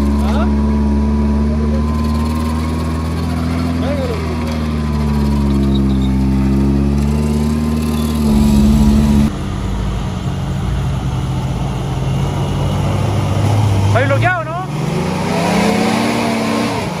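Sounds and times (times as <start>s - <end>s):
vehicle engine running at low revs: 8.3s - 12.6s.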